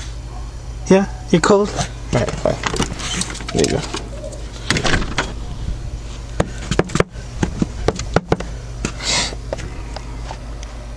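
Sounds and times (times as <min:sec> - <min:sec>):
door clattering shut: 0:04.7 - 0:05.4.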